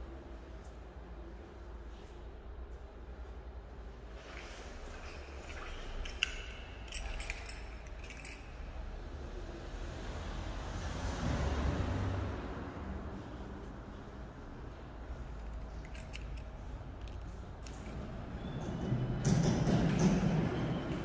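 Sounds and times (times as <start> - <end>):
metallic jingling and clinking: 4.2 - 9.6, 14.0 - 21.0.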